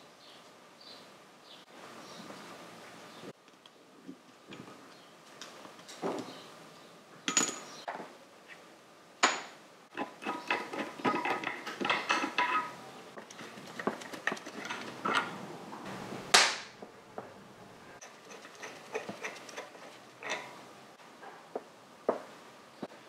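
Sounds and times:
metal washers and bolts clinking: 7.3s - 7.8s, 9.2s - 15.4s, 18.0s - 20.6s
metal part clacking down: 9.3s - 12.8s.

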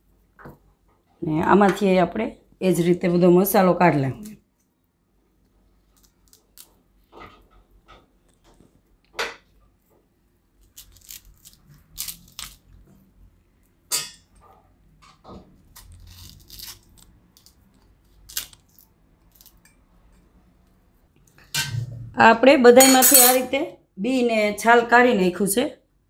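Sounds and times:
spoon clinking on steel bowl: 22.8s - 23.4s.

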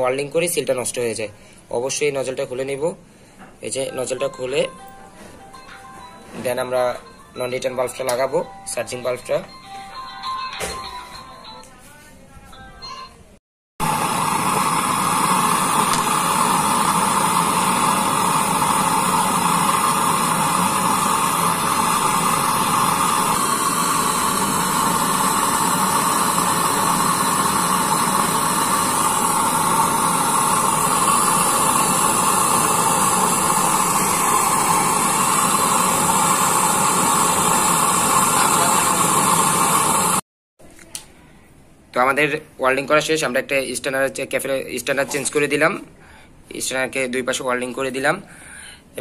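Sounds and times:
torch flame hissing: 13.8s - 40.2s.

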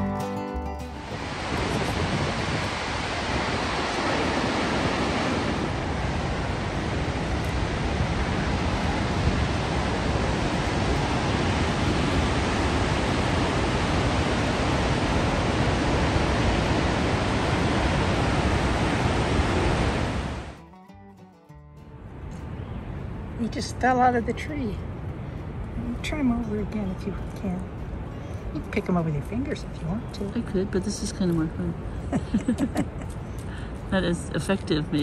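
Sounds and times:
waterfall rushing: 1.0s - 20.6s.

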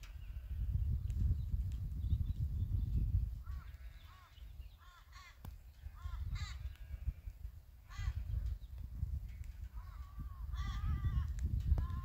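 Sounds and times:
crows cawing: 3.5s - 7.0s, 7.8s - 8.2s, 9.8s - 11.3s.

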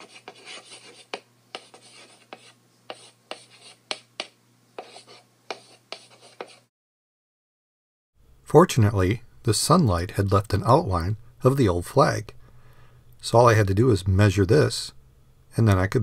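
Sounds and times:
chalk writing on blackboard: 0.0s - 6.7s.

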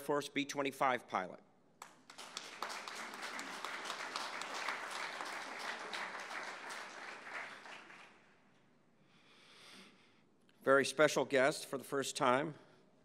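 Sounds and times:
audience applauding: 1.8s - 8.3s.

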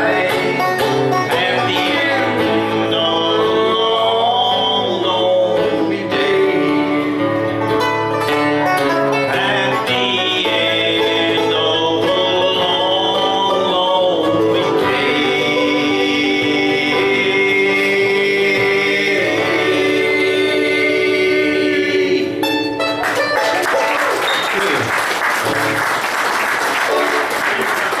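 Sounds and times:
person singing: 0.0s - 7.6s, 8.8s - 22.8s
banjo: 0.0s - 24.4s, 26.8s - 27.7s
acoustic guitar: 0.0s - 28.0s
audience applause: 23.0s - 28.0s.

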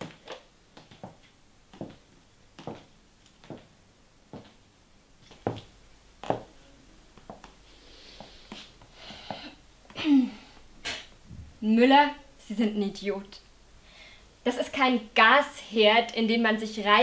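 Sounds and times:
high heels clicking on hard floor: 0.0s - 2.0s, 2.6s - 3.7s, 4.3s - 4.6s, 5.2s - 6.5s
soft rustling: 0.0s - 3.7s.

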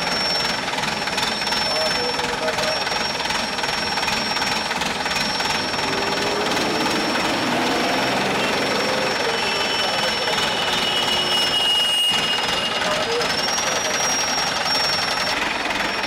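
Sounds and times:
machinery rattling: 0.0s - 11.3s, 12.1s - 16.0s
lower whine: 5.3s - 9.4s.

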